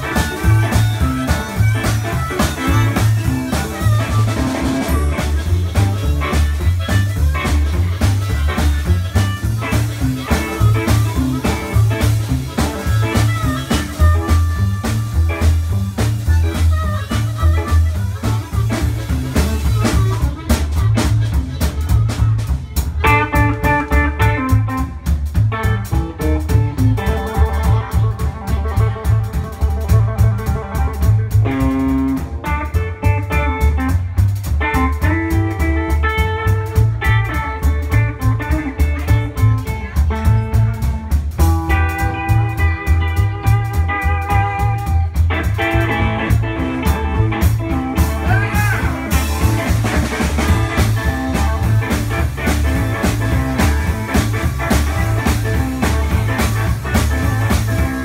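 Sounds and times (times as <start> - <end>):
amplified harmonica: 0.0 - 58.0
blues band playing: 0.0 - 58.0.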